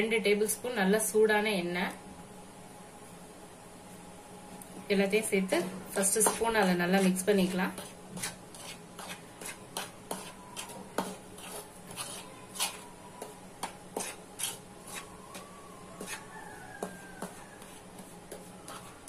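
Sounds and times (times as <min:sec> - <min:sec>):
spoon stirring flour in bowl: 0:05.2 - 0:19.0.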